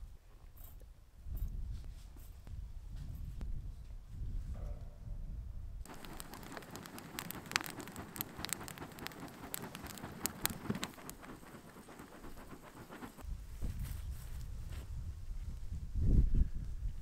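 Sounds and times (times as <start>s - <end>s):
wood fire crackling and popping: 5.9s - 13.2s.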